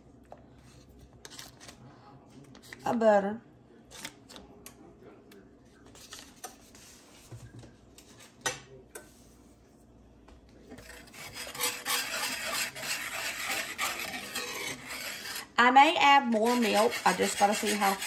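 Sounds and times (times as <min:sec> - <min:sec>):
whisk scraping a skillet: 0:10.7 - 0:18.0.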